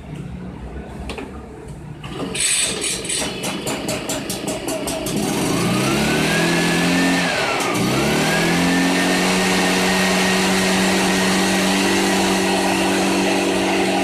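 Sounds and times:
leaf blower engine running: 4.6s - 14.0s.

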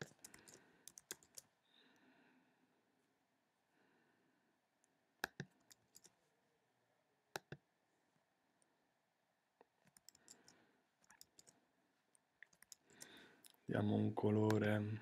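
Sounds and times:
computer mouse clicks: 0.0s - 1.5s, 5.2s - 6.2s, 7.3s - 7.7s, 9.8s - 11.6s, 12.4s - 13.6s.

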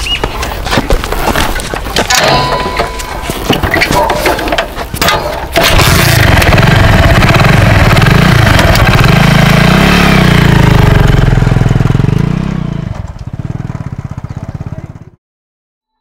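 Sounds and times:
motorcycle engine revving: 5.0s - 15.2s.

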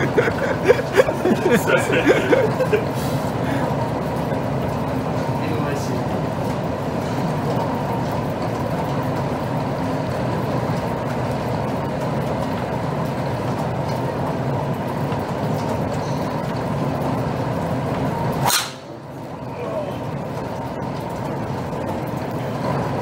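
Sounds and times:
steady background rumble: 0.0s - 23.0s
golf club striking ball: 18.4s - 19.0s.

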